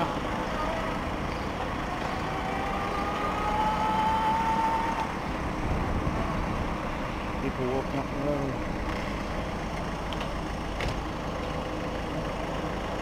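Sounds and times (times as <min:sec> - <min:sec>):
road and wind noise: 0:00.0 - 0:13.0
electric motor whine: 0:01.9 - 0:05.1.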